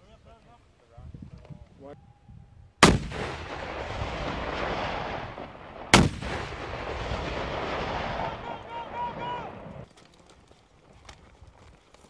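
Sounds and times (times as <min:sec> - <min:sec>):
rocket launcher blasts: 0:02.8 - 0:08.5
rumbling echo: 0:02.8 - 0:09.8.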